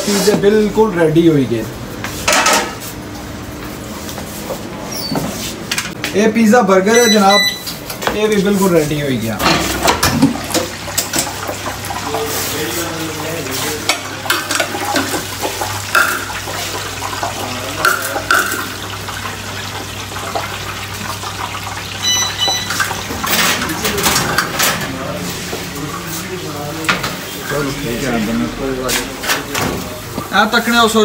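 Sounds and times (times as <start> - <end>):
short electronic beep: 6.9 - 7.7, 22.0 - 22.8
oil sizzling in deep fryer: 7.7 - 24.1.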